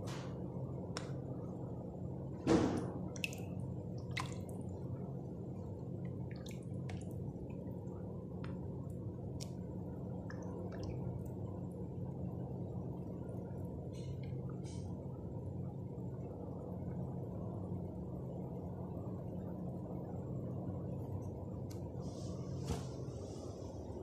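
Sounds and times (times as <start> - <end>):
steady low hum: 0.0 - 24.0
thump: 2.4 - 2.9.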